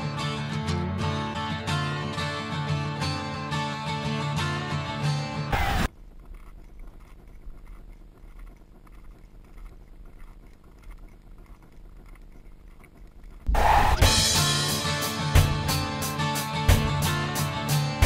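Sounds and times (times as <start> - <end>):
music: 0.0 - 5.9, 13.6 - 18.0.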